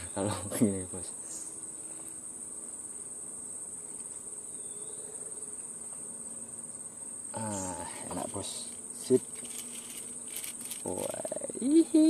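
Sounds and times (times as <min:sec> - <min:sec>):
insect chorus high-pitched trill: 0:00.0 - 0:12.0.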